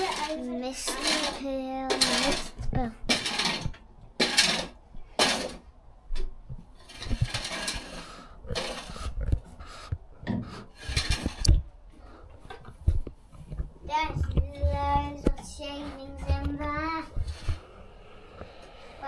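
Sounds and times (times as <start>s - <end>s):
rake scraping shavings: 0.0s - 5.6s, 6.8s - 9.2s, 10.7s - 11.5s.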